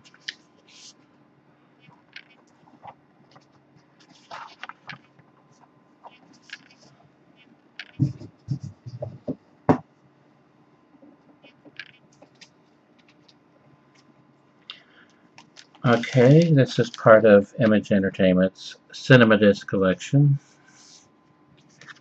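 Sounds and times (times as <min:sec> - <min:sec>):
faint steady hum: 0:00.0 - 0:22.0
cardboard rustling and scraping: 0:02.7 - 0:05.1, 0:15.8 - 0:17.0
dull thumps: 0:07.9 - 0:09.9.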